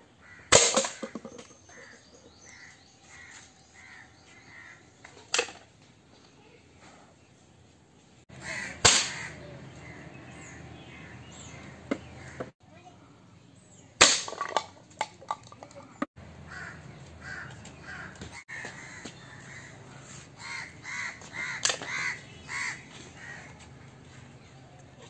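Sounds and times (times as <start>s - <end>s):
bird harsh repeated calls: 0.1s - 5.5s, 8.3s - 12.6s, 16.4s - 23.7s.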